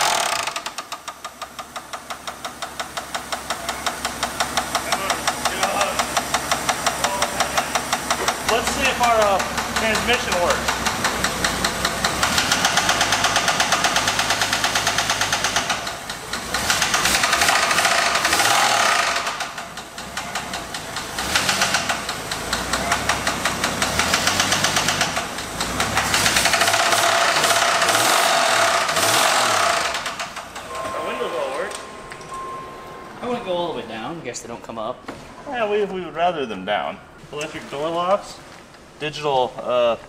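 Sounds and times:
car engine running with loud knocking: 0.0s - 30.8s.

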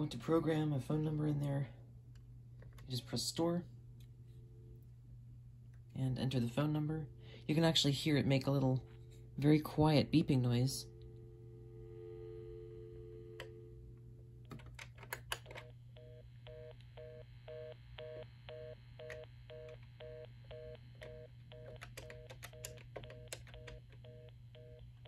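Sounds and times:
low buzz: 6.6s - 14.5s
phone dial tone: 11.8s - 14.0s, 14.6s - 25.0s.

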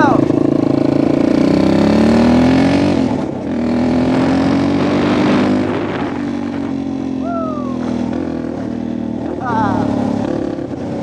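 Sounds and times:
vehicle engine revving: 0.0s - 11.0s.

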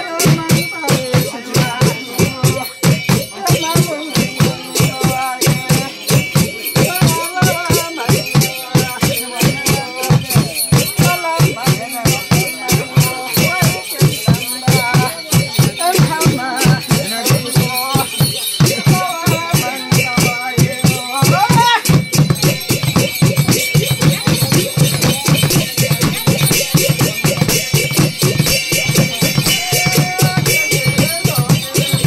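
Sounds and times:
person chanting: 0.0s - 21.9s, 28.2s - 32.0s
barrel drum beaten with sticks: 0.0s - 32.0s
jingling rattle: 0.0s - 32.0s.

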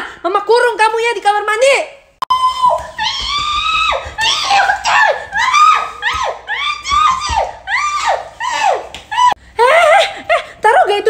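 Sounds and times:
woman screaming and wailing: 2.3s - 10.2s.

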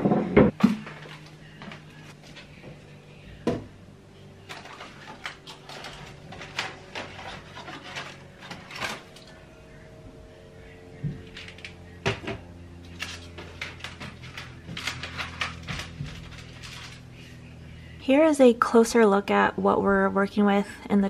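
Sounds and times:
objects knocking on wooden shelves: 0.0s - 1.0s
faint steady hum: 0.0s - 21.0s.

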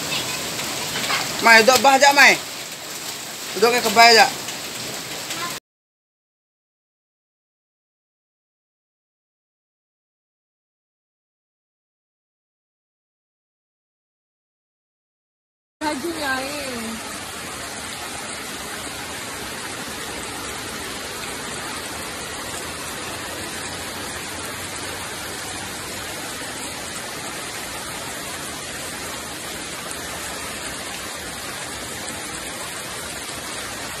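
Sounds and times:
water rushing: 0.0s - 5.6s, 15.8s - 34.0s.

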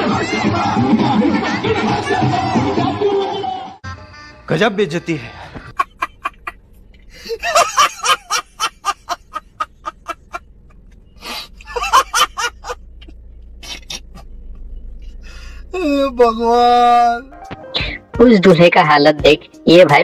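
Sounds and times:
man laughing hard: 5.3s - 10.4s, 11.2s - 12.8s.

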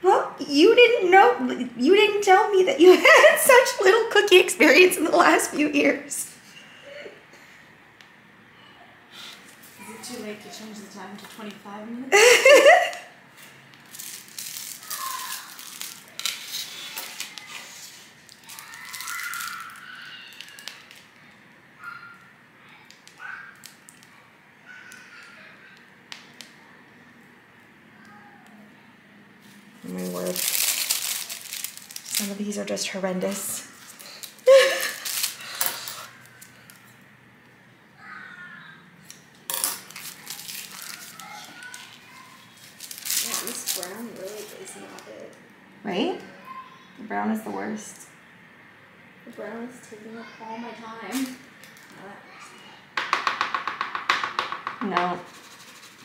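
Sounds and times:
plastic bags crinkling: 12.2s - 21.1s, 29.8s - 32.7s, 33.3s - 36.8s, 39.5s - 44.8s
handling noises: 39.3s - 45.2s.

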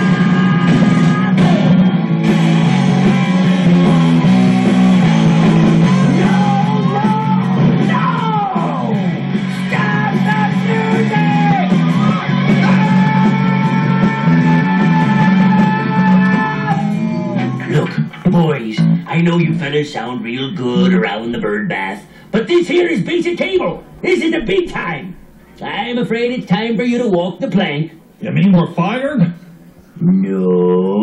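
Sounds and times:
person singing: 0.0s - 1.9s, 2.9s - 17.9s, 30.0s - 31.0s
rock song with electric guitar: 0.0s - 17.7s.

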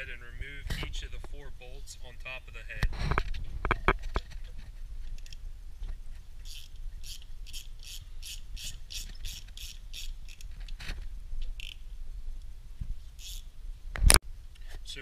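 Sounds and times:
ratchet clicking: 6.4s - 10.5s, 11.6s - 11.8s, 13.2s - 13.5s.

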